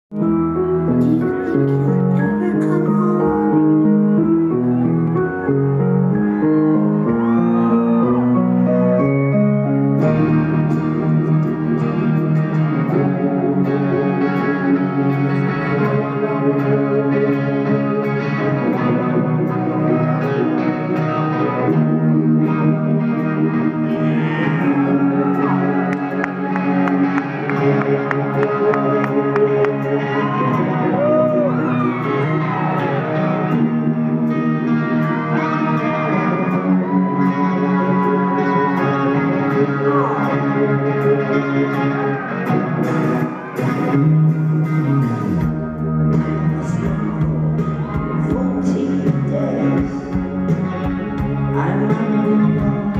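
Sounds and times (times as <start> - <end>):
bass guitar: 0.1 - 52.9
electric guitar bending notes: 0.1 - 52.9
live rock band playing: 0.1 - 52.9.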